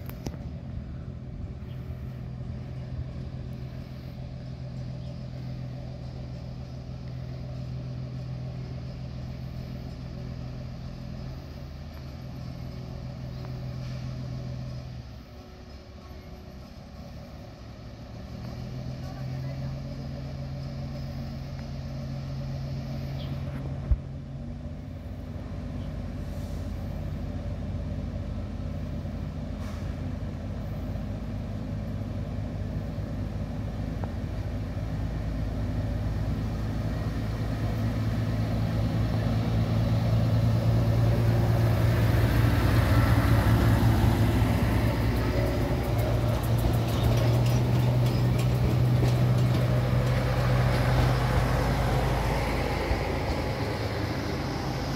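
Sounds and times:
diesel engines humming: 0.0s - 54.9s
wheels clattering over rails: 35.6s - 54.9s.

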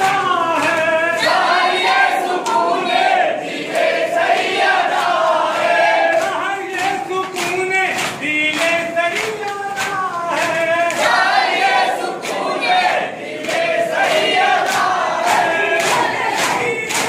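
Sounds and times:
group chanting in chorus: 0.0s - 7.4s, 10.3s - 17.0s.

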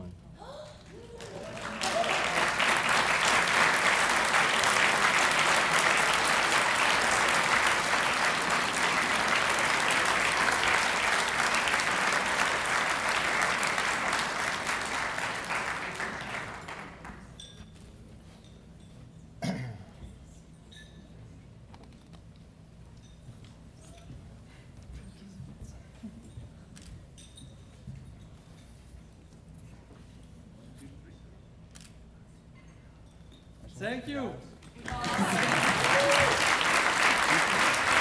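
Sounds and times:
audience applause: 1.0s - 17.2s, 34.8s - 38.0s.

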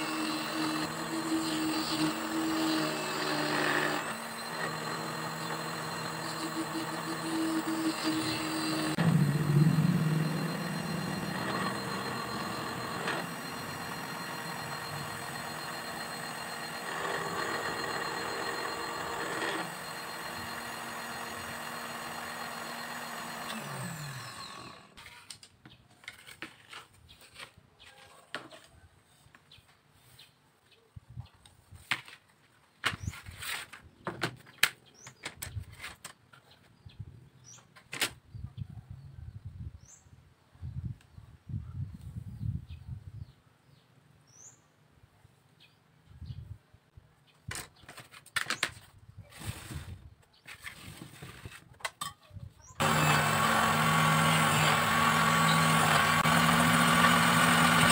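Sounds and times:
drill press running: 0.0s - 25.0s, 52.8s - 57.9s
motor winding down: 0.0s - 25.0s, 52.8s - 57.9s.

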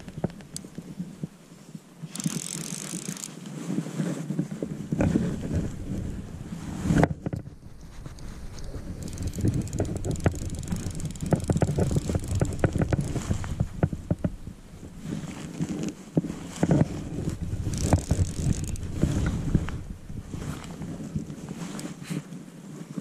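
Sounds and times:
wind: 0.0s - 23.0s
fly reel clicking: 2.1s - 3.5s, 7.8s - 14.3s, 17.4s - 19.8s
microphone handling rumble: 3.7s - 22.1s.

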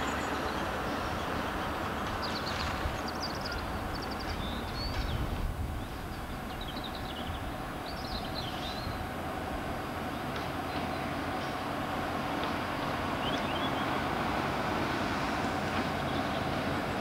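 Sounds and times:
small birds chirping: 0.0s - 9.1s, 10.0s - 11.7s, 12.7s - 14.1s
diesel locomotive engine running: 0.0s - 17.0s.

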